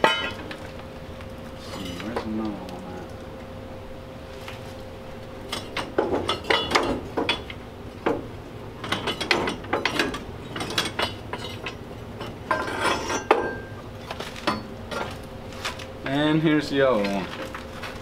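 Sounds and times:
metal car parts clanking: 5.5 - 7.5, 8.8 - 13.7.

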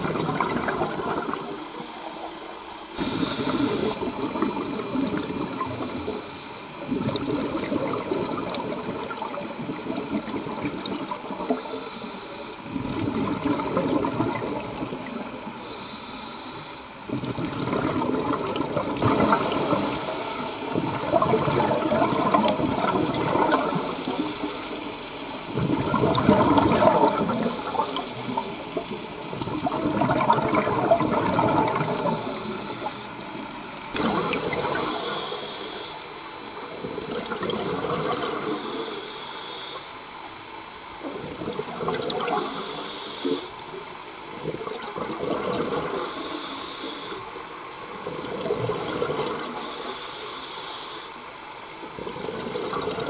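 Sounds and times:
bubbling on exhale: 0.0 - 1.7, 17.0 - 24.8, 25.4 - 35.9
regulator hiss on inhale: 1.5 - 4.1, 5.0 - 7.2, 10.6 - 12.8, 15.0 - 17.1, 19.2 - 21.3, 21.9 - 25.4, 26.8 - 29.2, 31.5 - 36.9, 38.3 - 40.9, 42.2 - 44.3, 45.9 - 47.8, 49.4 - 52.0.

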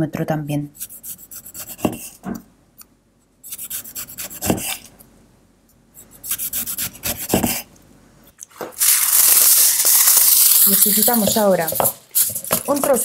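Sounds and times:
knife sawing through tomato: 0.8 - 2.2, 3.5 - 4.9, 6.0 - 7.7.

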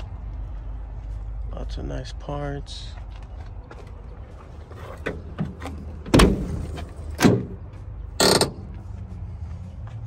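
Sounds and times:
car door clunks: 5.0 - 7.6.

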